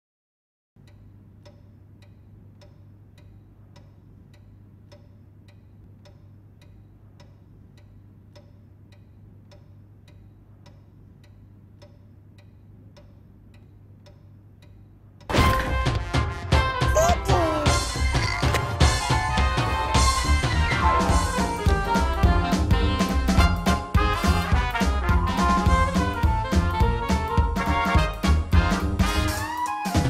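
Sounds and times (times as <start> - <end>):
faint even ticking: 0.8 - 15.3
low hum and hiss: 0.8 - 15.3.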